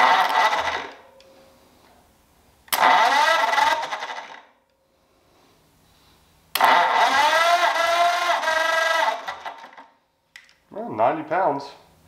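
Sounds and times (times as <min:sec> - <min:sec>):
starter motor cranking engine: 0:00.0 - 0:01.0, 0:02.7 - 0:04.5, 0:06.6 - 0:09.9.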